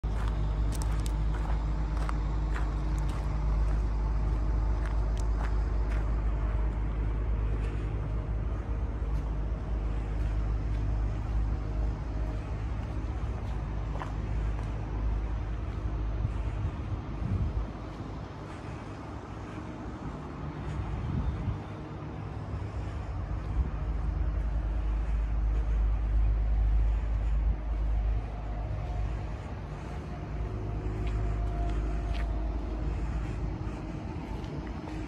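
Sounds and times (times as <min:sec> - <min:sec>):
diesel engine idling: 0:00.0 - 0:35.0
light ticks: 0:00.2 - 0:03.9.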